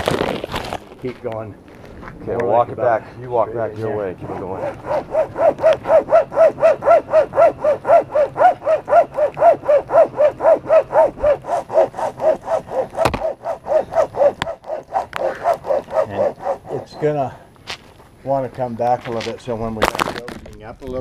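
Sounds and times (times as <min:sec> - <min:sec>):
saw squealing strokes: 0:04.2 - 0:17.4.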